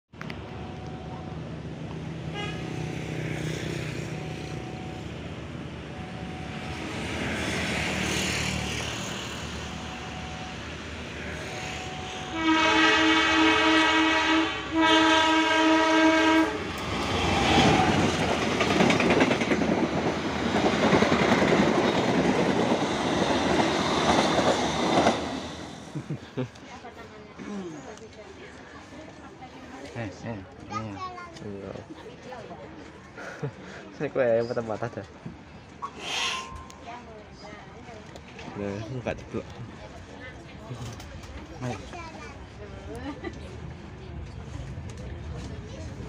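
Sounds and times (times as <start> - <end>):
train rumbling: 0.2 - 27.0, 34.6 - 46.0
locomotive horn blasts: 2.3 - 2.8, 11.9 - 16.7.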